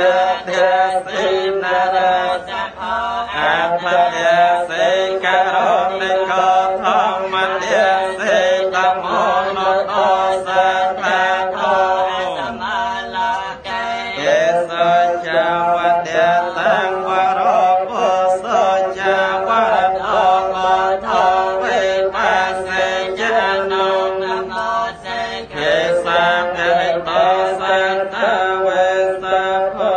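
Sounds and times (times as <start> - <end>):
monks chanting: 0.0 - 29.9
breath: 25.1 - 25.5.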